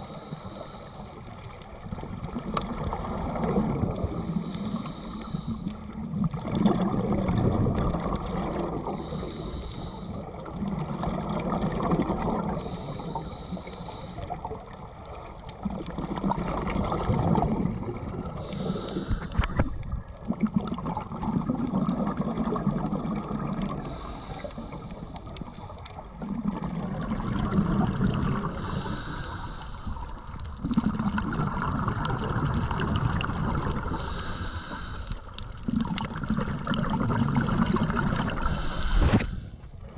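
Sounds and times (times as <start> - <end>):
diver inhaling through regulator: 0.0 - 1.3, 4.2 - 6.0, 8.8 - 10.4, 12.4 - 14.5, 18.3 - 19.7, 23.7 - 25.3, 28.2 - 30.3, 33.2 - 35.5, 37.4 - 39.7
exhaled air bubbling: 0.0 - 39.9.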